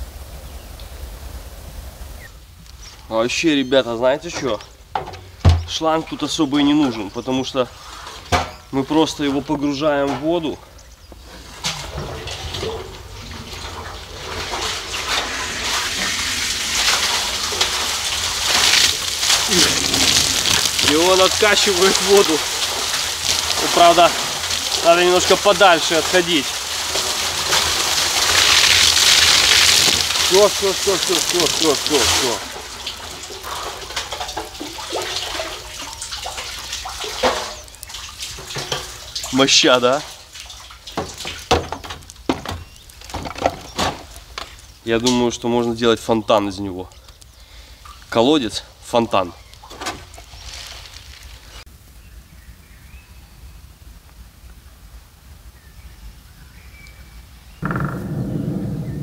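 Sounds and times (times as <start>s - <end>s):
water splashing and gushing: 5.5s - 45.8s, 47.5s - 51.7s.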